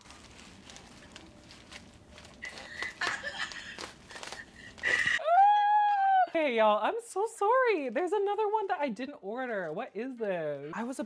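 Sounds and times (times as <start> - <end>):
man laughing breathily: 2.5 - 5.2.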